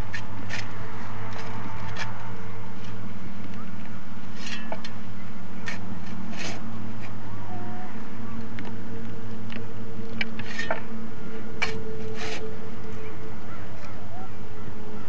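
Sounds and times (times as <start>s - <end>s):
steady low hum: 0.0s - 15.0s
spade scraping soil: 4.3s - 4.8s, 5.6s - 7.1s, 10.4s - 10.8s, 11.6s - 12.6s.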